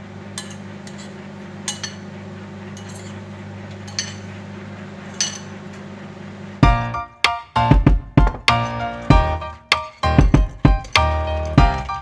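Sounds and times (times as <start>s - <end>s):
steady low hum: 0.0s - 12.0s
spoon clinking in ceramic bowl: 3.9s - 4.3s, 5.1s - 5.5s.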